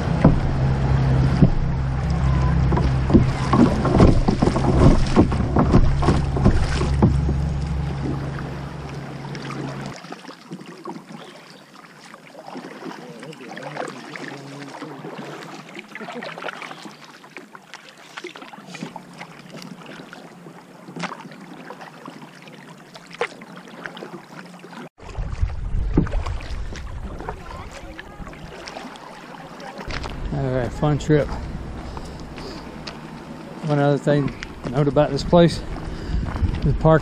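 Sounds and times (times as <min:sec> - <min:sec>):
low rumble: 0:00.0 - 0:09.9, 0:25.0 - 0:28.6, 0:29.9 - 0:37.0
paddle strokes splashing water: 0:00.0 - 0:37.0.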